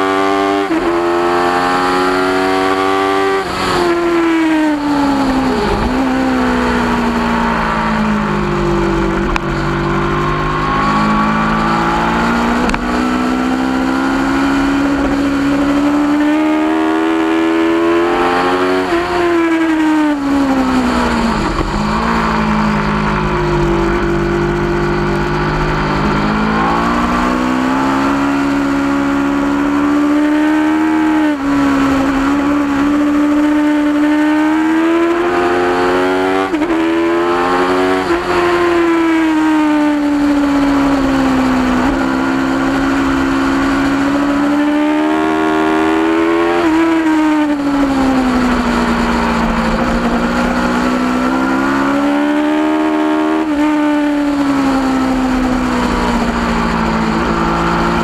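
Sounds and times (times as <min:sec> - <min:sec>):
motorcycle engine revving: 0:00.0 - 0:58.0
wind noise: 0:03.3 - 0:30.6, 0:36.2 - 0:52.6.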